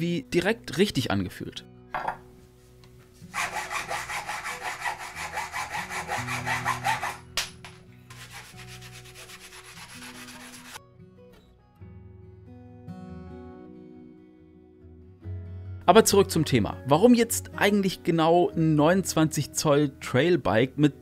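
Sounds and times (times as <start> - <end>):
background music: 0.0 - 21.0
hacksaw sawing metal: 3.3 - 7.3, 8.1 - 10.8.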